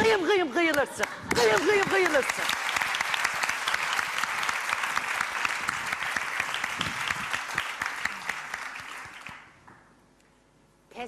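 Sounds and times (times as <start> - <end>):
audience applauding: 1.3 - 9.6.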